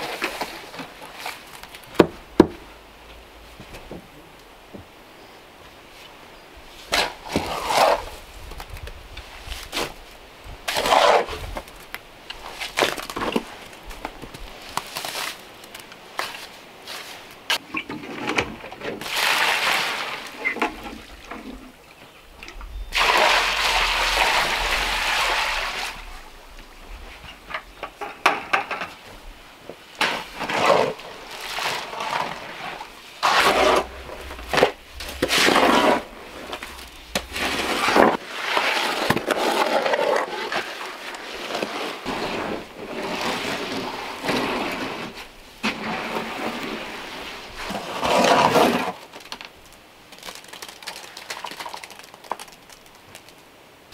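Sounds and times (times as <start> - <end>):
hoe scraping through wet cement: 6.8 - 8.3, 10.7 - 11.7, 30.0 - 49.1
water pouring from a bucket: 19.0 - 21.6, 22.9 - 26.4, 30.1 - 49.0, 50.1 - 53.4.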